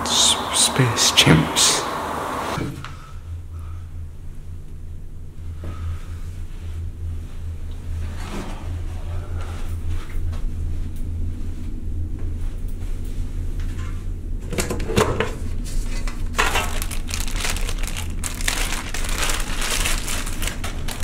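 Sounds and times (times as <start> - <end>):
steady low hum: 0.0 - 21.0
plastic wrapping rustling: 15.8 - 21.0.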